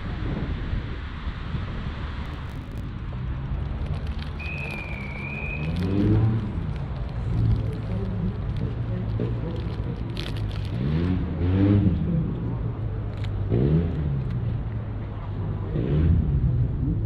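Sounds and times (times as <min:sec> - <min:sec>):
diesel engines rumbling: 0:00.0 - 0:17.0
engine revving: 0:10.6 - 0:12.1, 0:15.6 - 0:16.5.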